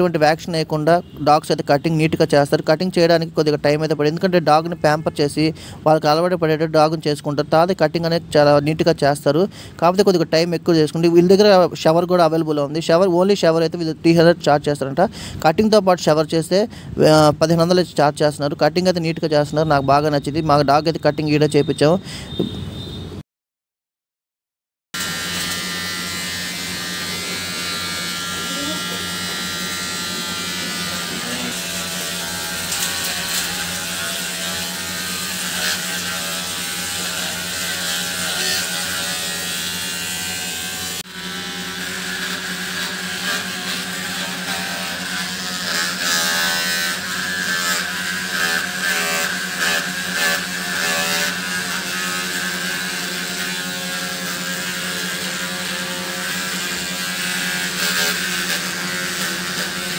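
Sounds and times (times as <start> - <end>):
electric clippers buzzing: 25.0 - 59.9.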